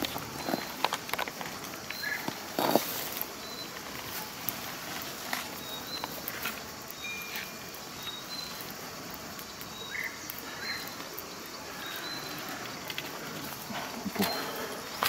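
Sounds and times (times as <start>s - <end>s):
steady low hiss: 0.0s - 15.0s
faint high chirps: 3.2s - 4.4s, 5.5s - 12.8s.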